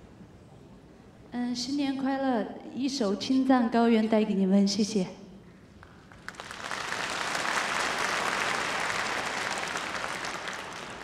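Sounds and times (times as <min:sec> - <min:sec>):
audience applause: 0:05.9 - 0:11.0.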